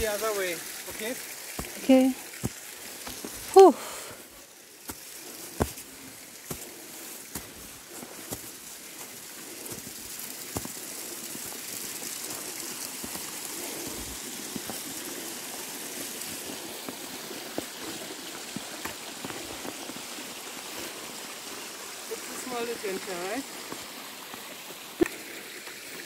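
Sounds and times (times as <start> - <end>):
stream rushing: 0.0 - 26.0
footsteps crunching on snow: 0.8 - 3.7, 4.8 - 21.1.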